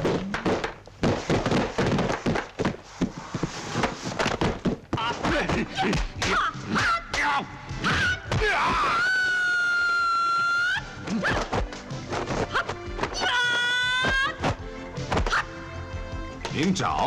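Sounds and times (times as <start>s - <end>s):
long high-pitched yells: 7.8s - 10.9s, 13.2s - 14.4s.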